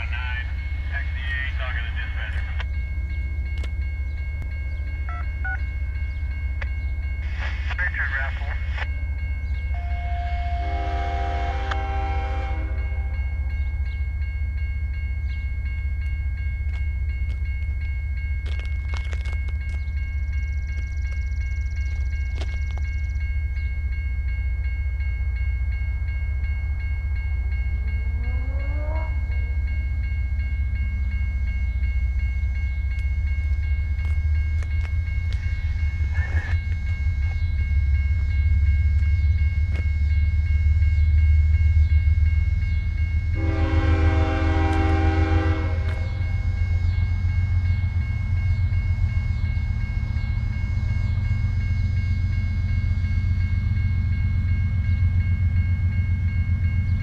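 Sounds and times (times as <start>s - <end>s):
train rumble: 0.0s - 57.0s
distant train horn chord: 9.7s - 13.7s, 28.0s - 29.6s, 43.2s - 49.5s.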